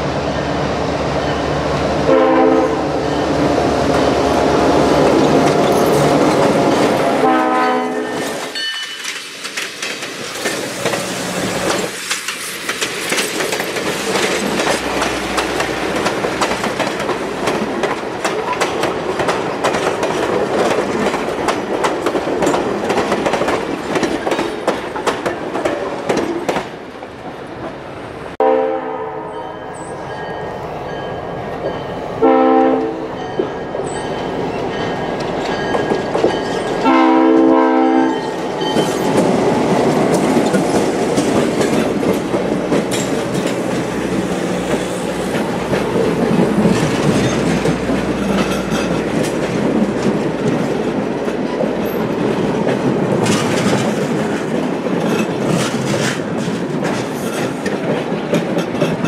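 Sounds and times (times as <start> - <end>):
locomotive passing: 0.0 - 59.0
locomotive horn blasts: 2.0 - 3.1, 7.1 - 8.4, 28.4 - 29.6, 32.2 - 33.2, 36.8 - 38.3
wheels clattering over rail joints: 8.2 - 26.8, 38.3 - 59.0.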